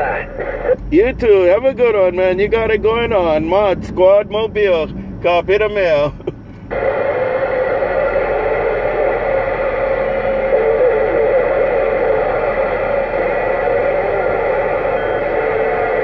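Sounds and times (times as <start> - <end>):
radio static hiss: 0.0 - 3.4, 6.6 - 16.0
faint wavering whistle: 6.9 - 16.0.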